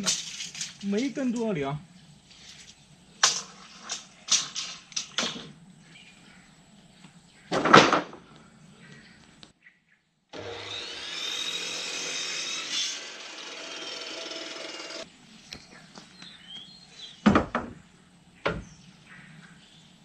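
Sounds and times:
cut-off saw cutting board: 0:10.4 - 0:15.0
handheld power saw cutting wood: 0:10.4 - 0:15.1.

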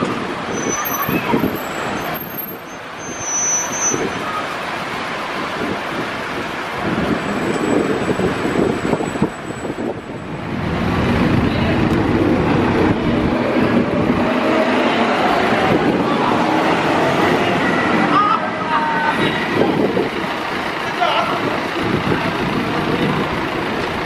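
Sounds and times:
street traffic: 0:00.0 - 0:24.0
truck engine running: 0:19.4 - 0:24.0.

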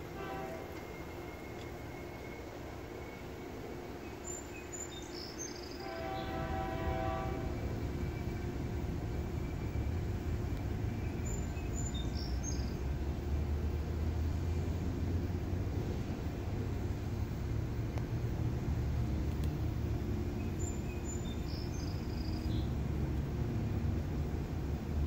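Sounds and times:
locomotive horn: 0:00.0 - 0:01.4, 0:05.8 - 0:07.8
locomotive engine rumble: 0:00.0 - 0:25.0.

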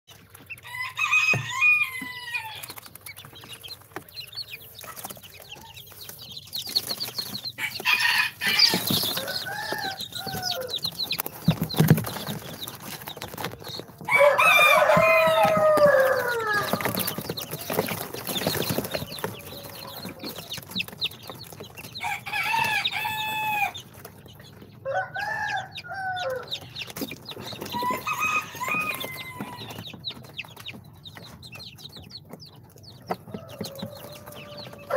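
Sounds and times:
chicks peeping and chirping: 0:00.1 - 0:34.9.

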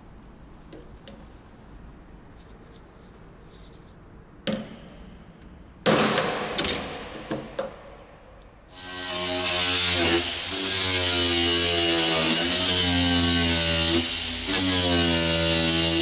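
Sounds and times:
hammer striking metal punch: 0:05.8 - 0:07.8.

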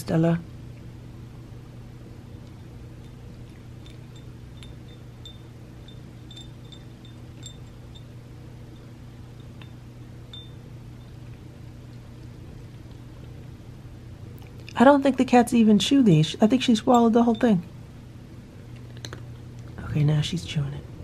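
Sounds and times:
steady low hum: 0:00.0 - 0:21.0
treat clinking on ceramic saucer: 0:02.6 - 0:11.3.

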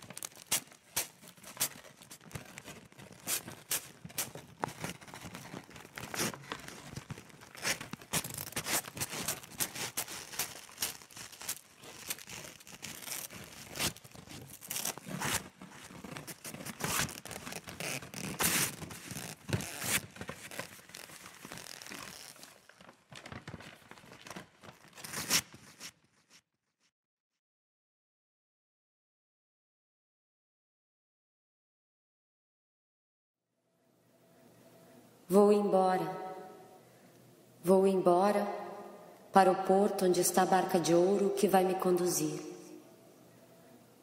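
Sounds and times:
paper tearing and crumpling: 0:00.0 - 0:26.4.

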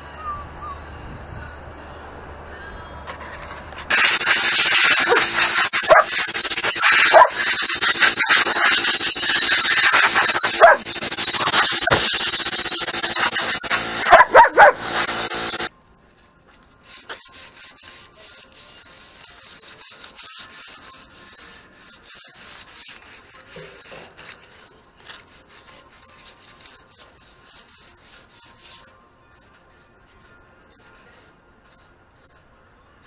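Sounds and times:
compressed air hissing from blow gun: 0:03.9 - 0:15.7.

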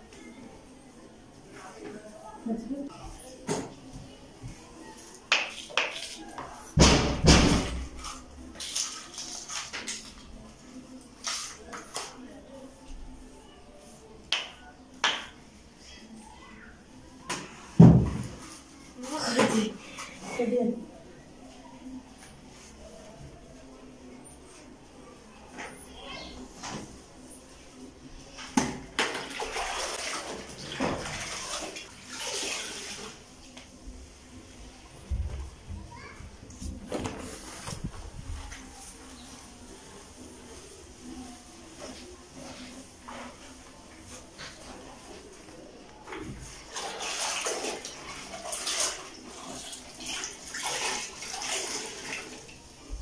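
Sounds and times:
bucket knocking on tiled floor: 0:17.8 - 0:18.3
cloth swished in water bucket: 0:29.1 - 0:33.4, 0:46.4 - 0:52.8.

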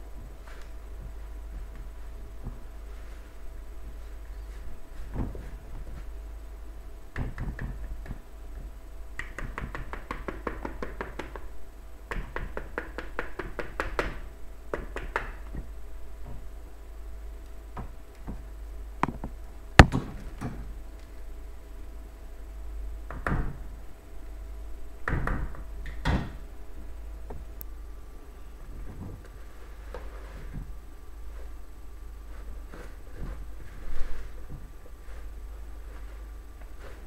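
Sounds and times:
sharp knocks: 0:19.0 - 0:20.6.

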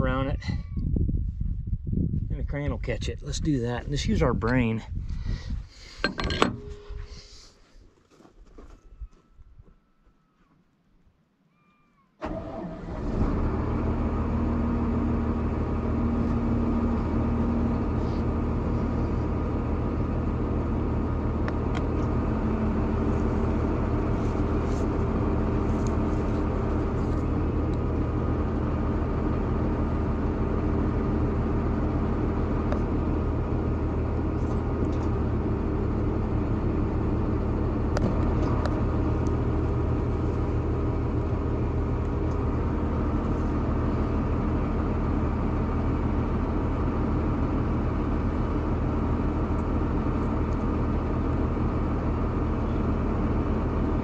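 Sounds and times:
engine running steadily: 0:02.3 - 0:07.4, 0:12.2 - 0:54.0.

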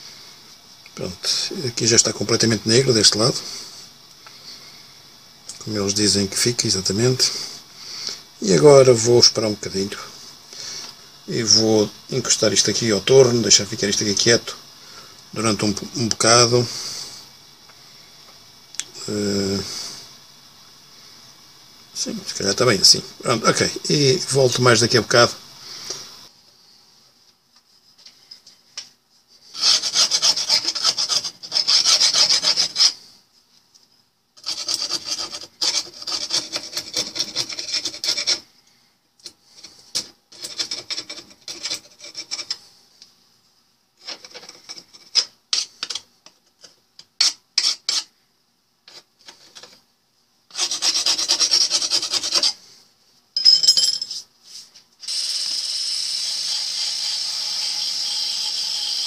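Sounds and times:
rotary wire brush on metal: 0:29.5 - 0:33.1, 0:34.4 - 0:38.5, 0:39.5 - 0:42.6, 0:50.5 - 0:52.6, 0:55.1 - 0:59.0
blade scraping rust off metal: 0:29.6 - 0:33.0.

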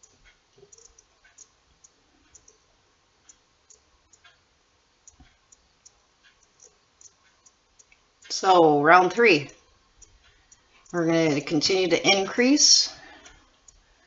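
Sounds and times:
faint small clicks: 0:00.0 - 0:02.6, 0:03.2 - 0:04.4, 0:05.0 - 0:08.3.

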